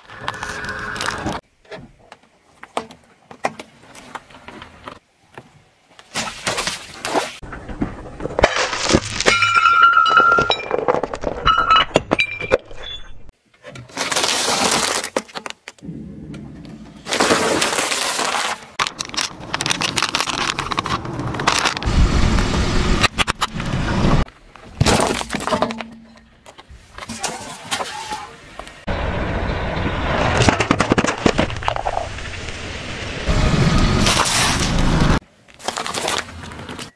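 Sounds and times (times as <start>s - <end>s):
objects crunching under car tyre: 7.4s - 12.6s, 13.8s - 15.9s, 16.7s - 28.8s, 29.8s - 32.9s, 33.8s - 36.9s.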